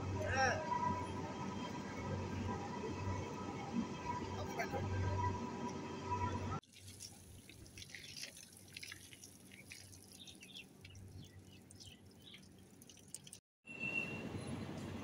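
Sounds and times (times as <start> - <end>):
water dripping and splashing: 6.6 - 13.4.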